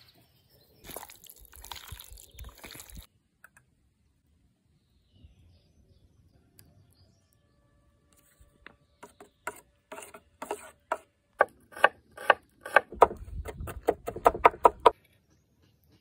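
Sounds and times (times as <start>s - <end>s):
knife chopping on wooden board: 9.0s - 14.9s.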